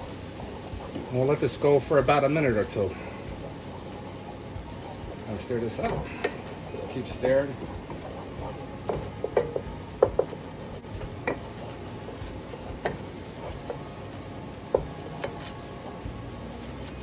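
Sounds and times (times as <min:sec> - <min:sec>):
steady hiss: 0:00.0 - 0:17.0
wooden spoon scraping a pan: 0:05.1 - 0:17.0.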